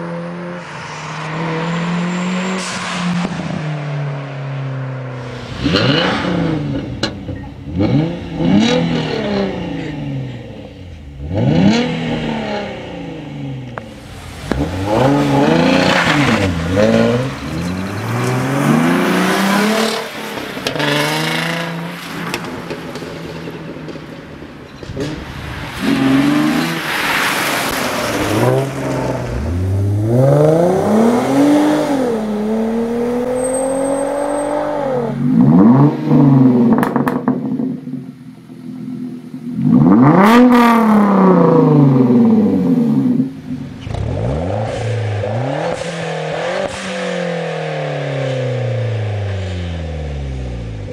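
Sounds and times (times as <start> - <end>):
car engine revving: 0.0 - 23.9, 24.8 - 50.9.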